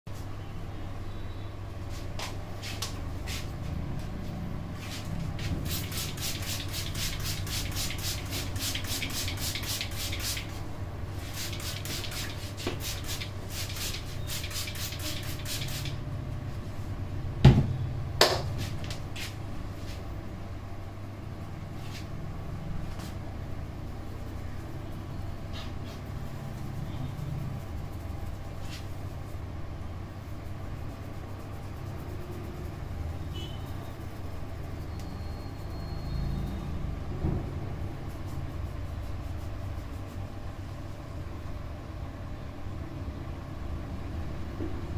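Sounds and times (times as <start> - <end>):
steady low hum: 0.1 - 44.9
spray bottle squirting: 5.7 - 10.5, 11.3 - 16.0.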